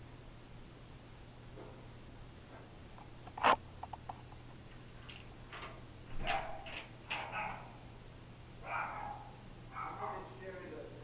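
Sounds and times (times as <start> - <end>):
small dogs yapping: 6.2 - 7.9, 8.6 - 10.2.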